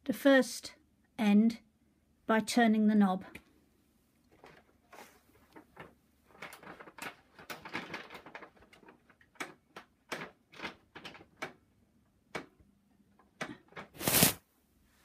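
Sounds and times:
paper sheet rustling: 0:04.4 - 0:09.0, 0:13.8 - 0:14.4.

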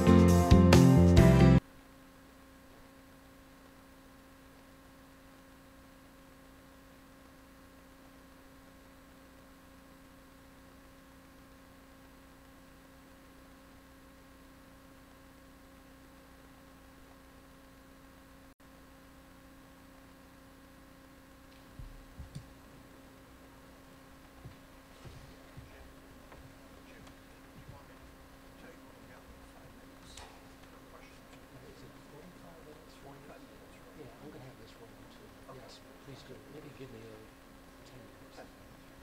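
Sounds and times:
guitar background music: 0:00.0 - 0:01.6
faint steady hum: 0:01.2 - 0:39.0.

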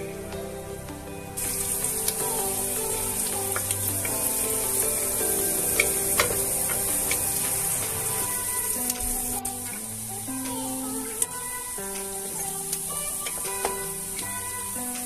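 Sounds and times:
onions sizzling in oil: 0:01.4 - 0:10.2.

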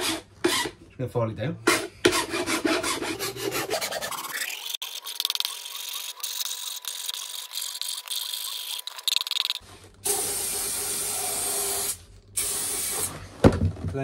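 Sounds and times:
hand file rasping on plastic: 0:01.7 - 0:09.1.

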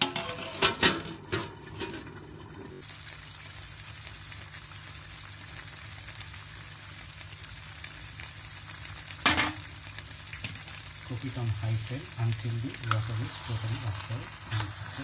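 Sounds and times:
food bubbling in a pot: 0:01.2 - 0:15.0.

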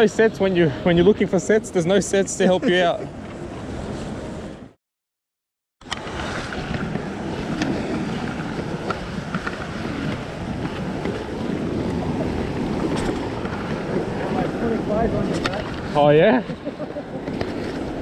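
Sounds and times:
wind buffeting microphone: 0:05.9 - 0:18.0.

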